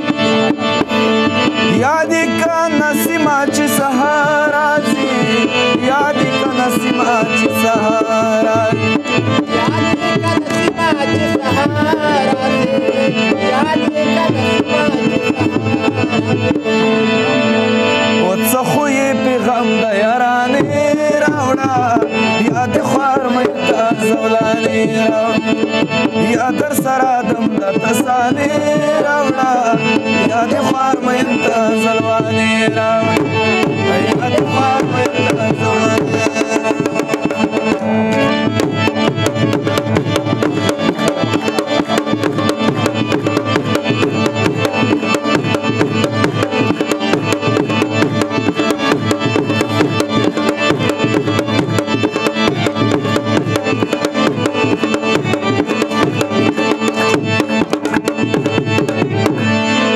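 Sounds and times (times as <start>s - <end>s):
harmonium: 0.0s - 59.9s
man singing: 0.0s - 59.9s
tabla strokes: 20.6s - 59.8s.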